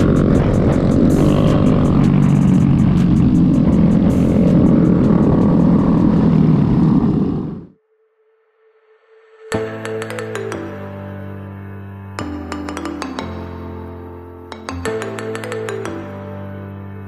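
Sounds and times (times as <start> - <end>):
motorcycle engine rumble: 0.0 - 7.7
wind rush: 0.0 - 7.8.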